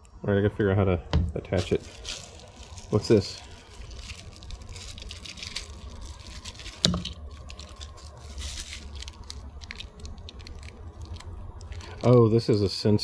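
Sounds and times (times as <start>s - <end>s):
plastic packaging crinkling: 1.5s - 13.0s.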